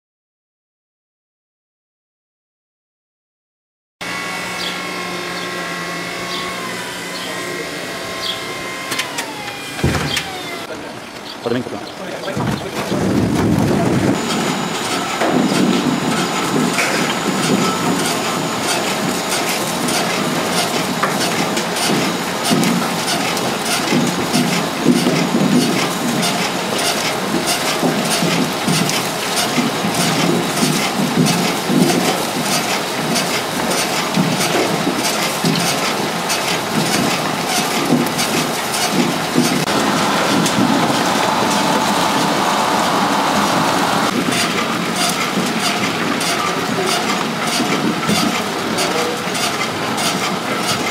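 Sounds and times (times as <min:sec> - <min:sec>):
garlic and soil clattering in machine: 0:12.2 - 0:50.9.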